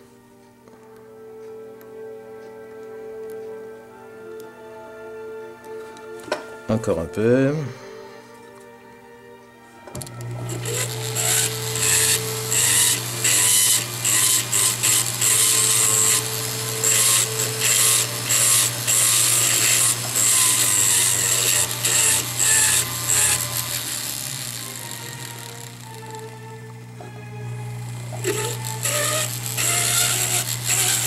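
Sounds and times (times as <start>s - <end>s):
rotary handpiece motor hum: 10.0s - 31.0s.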